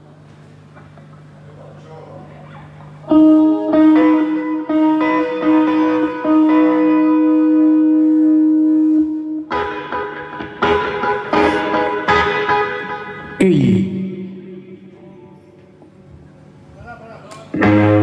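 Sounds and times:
electric guitar chord: 3.0s - 15.8s, 17.5s - 18.0s
electric guitar notes ringing: 3.0s - 16.1s, 17.5s - 18.0s.

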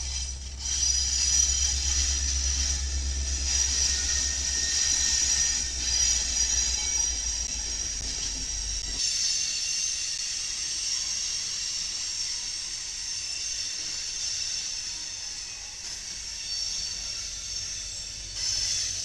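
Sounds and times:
train wheels hissing on rails: 0.0s - 19.0s.

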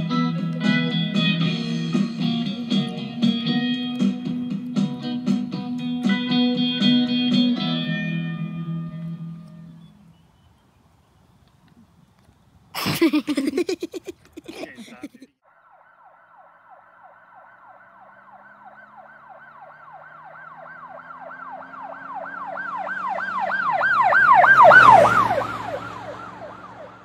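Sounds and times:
siren yelping: 15.4s - 27.0s.

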